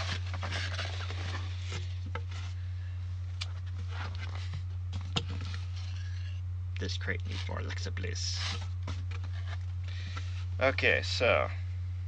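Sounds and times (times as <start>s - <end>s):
cardboard rustling and scraping: 0.0s - 2.6s, 3.5s - 6.0s, 7.2s - 10.5s
low hum: 0.0s - 12.0s.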